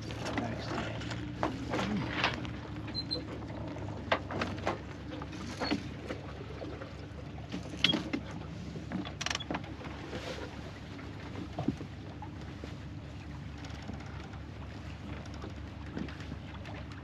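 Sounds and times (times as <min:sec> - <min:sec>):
boat gear knocking and clicking: 0:00.0 - 0:04.9, 0:07.5 - 0:08.3, 0:08.9 - 0:09.8, 0:13.5 - 0:17.0
water and wind noise: 0:00.0 - 0:17.0.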